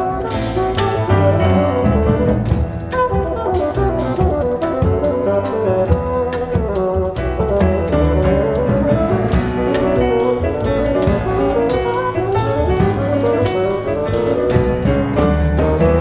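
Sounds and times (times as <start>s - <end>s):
bassoon: 0.0s - 16.0s
double bass: 0.0s - 16.0s
drum kit: 0.0s - 16.0s
piano: 0.0s - 16.0s.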